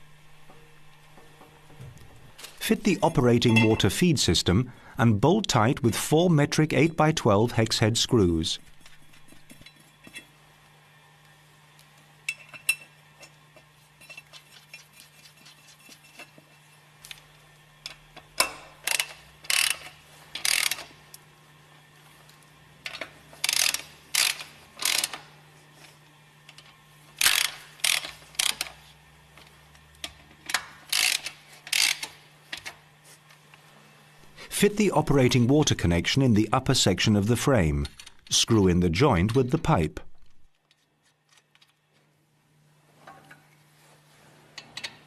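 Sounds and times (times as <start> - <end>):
ratchet wrench clicking: 18.8 - 20.9, 23.4 - 25.2, 27.2 - 28.8, 30.9 - 32.2.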